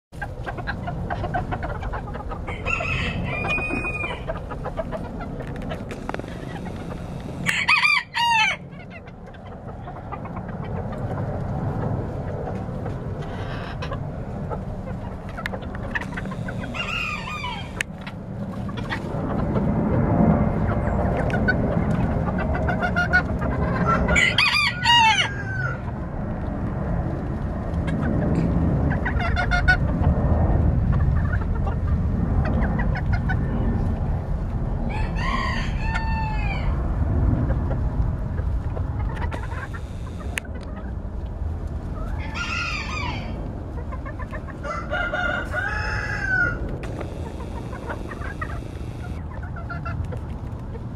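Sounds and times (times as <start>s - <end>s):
chickens clucking: 0.2s - 34.0s, 34.8s - 50.9s
rooster crowing: 2.5s - 4.3s, 7.0s - 8.7s, 16.3s - 17.8s, 23.8s - 25.8s, 34.9s - 36.8s, 42.2s - 43.4s, 44.6s - 49.2s
low rumble: 8.6s - 24.2s, 25.8s - 35.2s, 36.3s - 42.2s.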